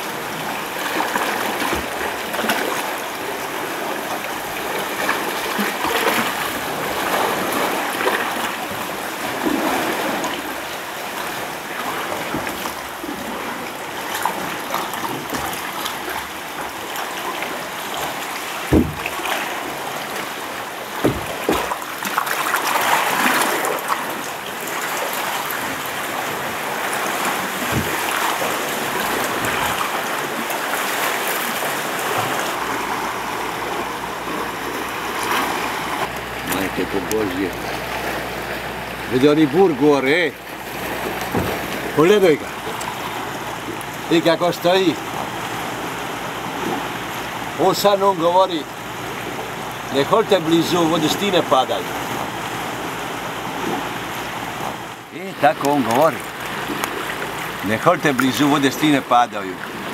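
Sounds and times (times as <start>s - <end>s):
sea water sloshing around a boat: 0.0s - 59.9s
dull knocks: 18.7s - 19.4s, 21.0s - 21.9s, 27.6s - 28.4s, 40.9s - 41.8s.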